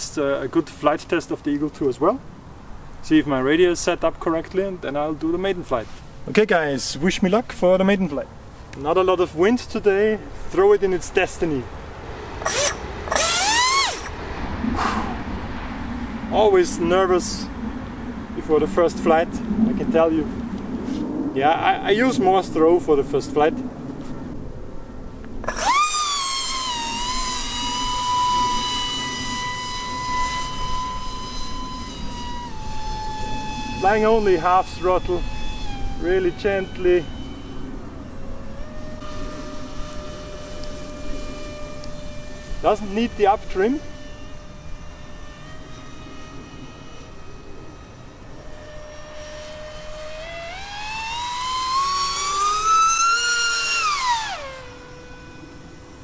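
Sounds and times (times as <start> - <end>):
electric motor whine: 9.8 - 56.0.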